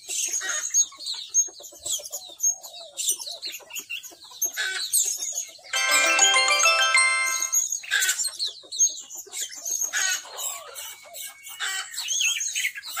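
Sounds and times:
chime-like ringing: 0:05.8 - 0:07.6.

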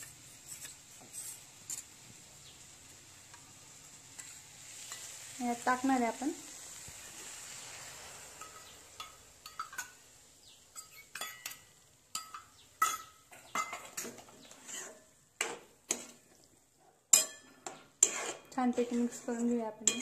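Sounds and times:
metal spoon clinking in wok: 0:08.4 - 0:10.0, 0:10.7 - 0:14.0, 0:17.1 - 0:18.3.

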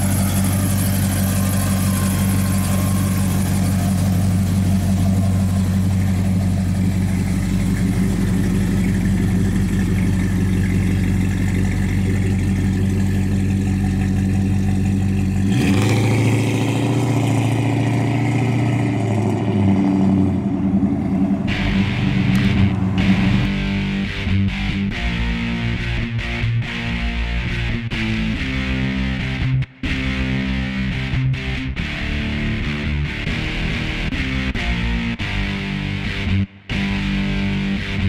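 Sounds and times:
car engine revving pulling away: 0:00.0 - 0:25.2
car engine idling: 0:00.0 - 0:25.7.

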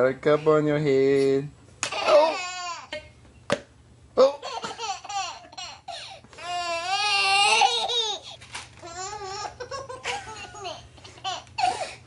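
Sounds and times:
baby laughing: 0:01.8 - 0:03.0, 0:04.2 - 0:11.9.

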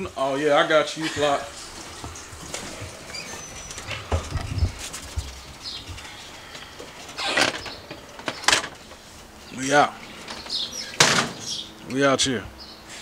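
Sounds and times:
footsteps: 0:01.0 - 0:07.3
door rustling scrape: 0:01.5 - 0:11.6.

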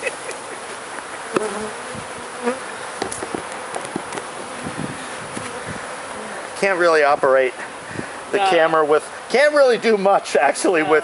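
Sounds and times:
single bees humming past: 0:00.0 - 0:06.8
bee swarm buzzing: 0:00.0 - 0:10.1.

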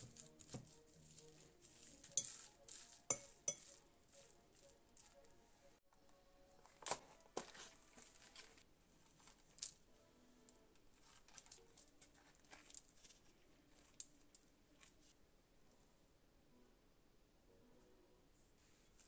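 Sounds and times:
plastic packaging crinkling: 0:06.6 - 0:09.8, 0:11.0 - 0:13.3.

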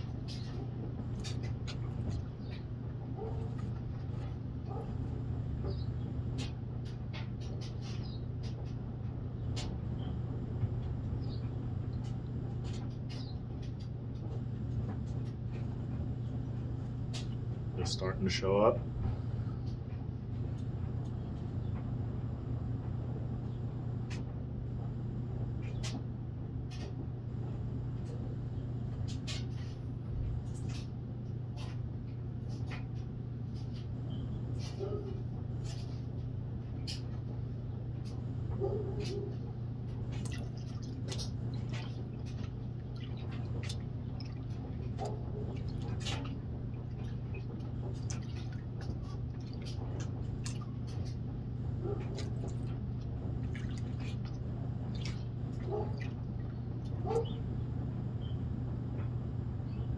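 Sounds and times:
steady low hum: 0:00.0 - 0:59.9
water splashing and dripping: 0:40.0 - 0:51.3, 0:52.0 - 0:57.0.

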